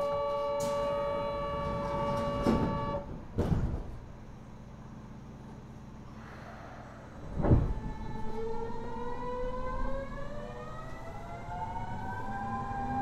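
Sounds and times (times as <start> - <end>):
thud: 3.3 - 4.0, 7.3 - 7.8
train inverter tones rising: 6.6 - 13.0.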